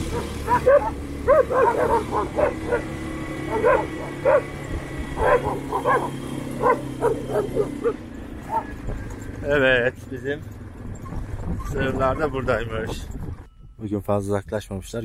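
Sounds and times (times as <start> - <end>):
dogs barking: 0.0 - 8.9
engine humming: 0.0 - 13.9.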